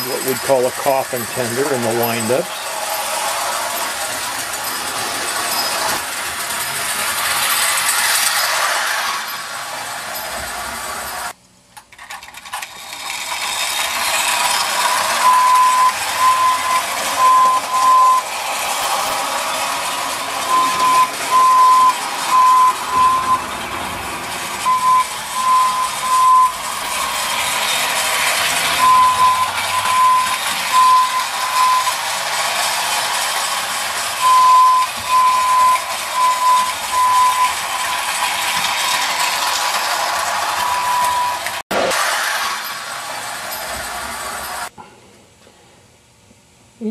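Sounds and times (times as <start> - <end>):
tin wheels rattling on track: 0.0 - 44.7
wind-up train motor whirring: 0.0 - 44.7
toy train whistle toots: 14.8 - 18.4, 24.6 - 27.2, 28.7 - 32.0, 34.2 - 39.3, 40.6 - 41.5
short high beep: 24.7 - 26.6.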